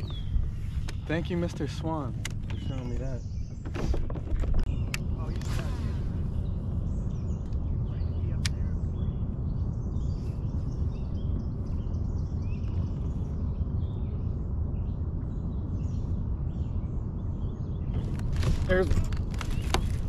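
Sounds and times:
birds chirping: 0.0s - 20.0s
low outdoor rumble: 0.0s - 20.0s.

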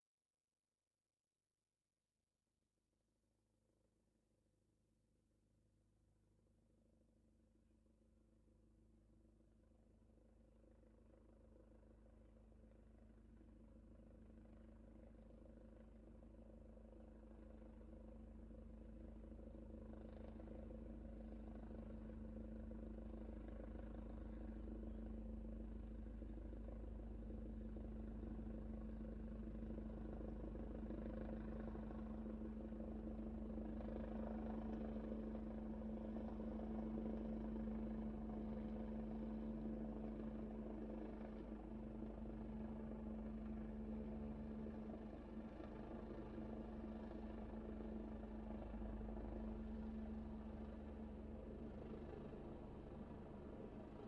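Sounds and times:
helicopter engine drone: 10.6s - 54.0s.

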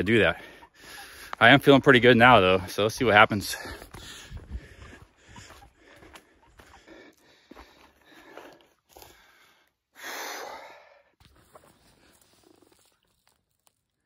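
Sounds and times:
person breathing: 0.4s - 1.4s, 3.5s - 11.2s.

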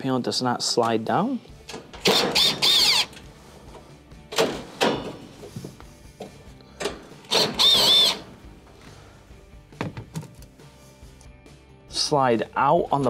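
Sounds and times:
cordless drill whirring: 2.0s - 3.2s, 7.3s - 8.2s.

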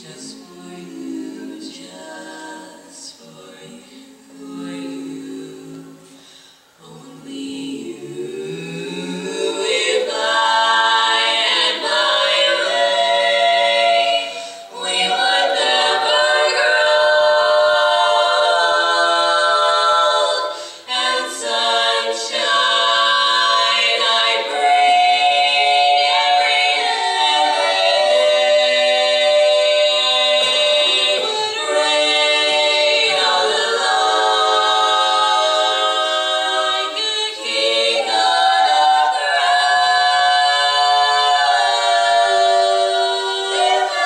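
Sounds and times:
women singing a cappella harmony: 0.0s - 44.0s.

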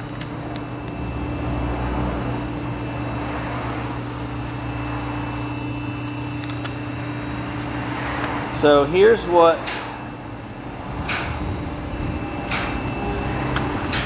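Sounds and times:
machinery droning hum: 0.0s - 14.0s.

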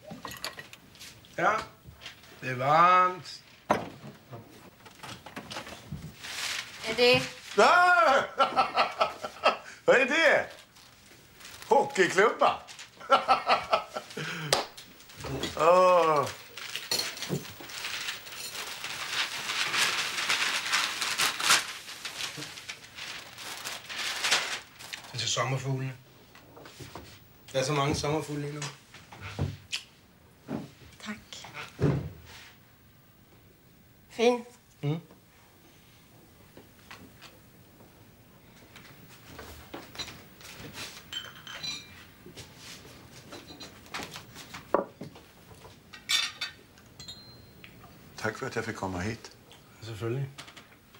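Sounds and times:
cutlery and plates clinking: 0.0s - 0.8s, 41.0s - 42.1s, 43.3s - 44.0s, 45.9s - 47.8s
wrapping paper crackling and tearing: 6.2s - 7.9s, 10.4s - 13.0s, 15.0s - 25.5s
wine glasses clinking: 41.1s - 42.1s, 46.1s - 47.8s.

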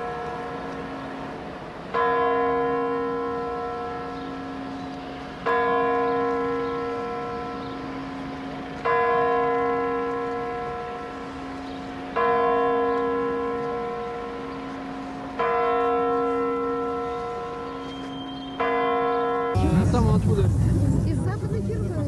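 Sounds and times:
large bell tolling: 18.6s - 22.0s.

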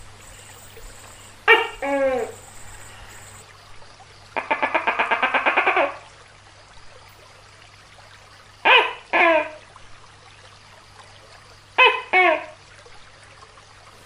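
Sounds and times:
gecko rattling clucks: 0.0s - 3.4s.

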